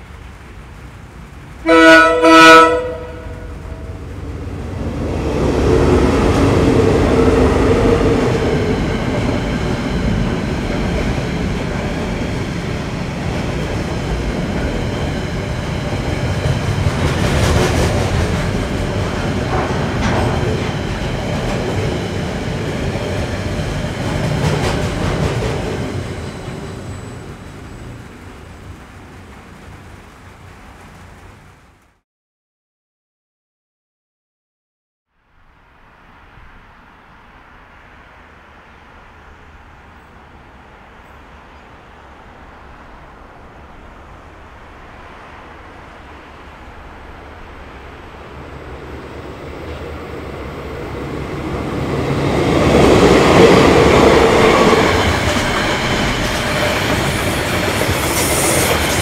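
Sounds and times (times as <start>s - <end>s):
locomotives passing at speed: 0.0s - 31.9s, 35.4s - 59.0s
train horn blasts: 1.6s - 4.0s
freight wagons rumbling: 2.9s - 31.9s.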